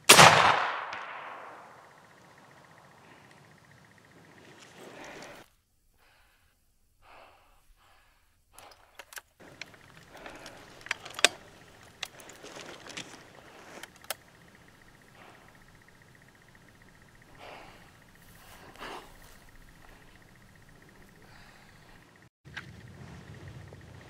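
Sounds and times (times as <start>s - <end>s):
sharp clicks: 8.5s - 22.7s.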